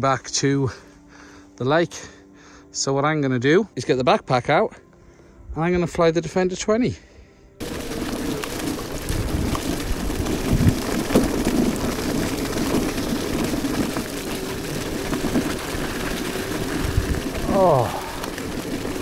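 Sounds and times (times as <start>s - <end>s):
scooter tyres rattling over gravel: 7.6s - 19.0s.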